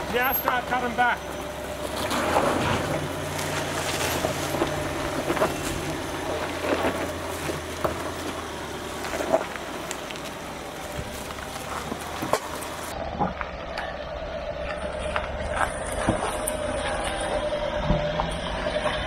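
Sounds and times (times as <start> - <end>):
tyres crunching on rock: 0.0 - 13.9
diesel engine hum: 0.0 - 19.0.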